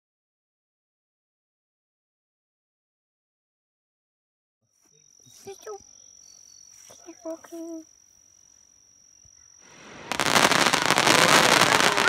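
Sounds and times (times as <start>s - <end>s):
fireworks crackling: 9.6s - 12.0s.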